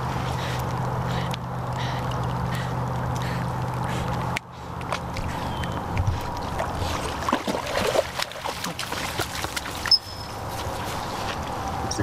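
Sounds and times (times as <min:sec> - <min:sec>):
dog rustling through wet plants: 0:06.1 - 0:11.4
small splashes: 0:06.2 - 0:10.0.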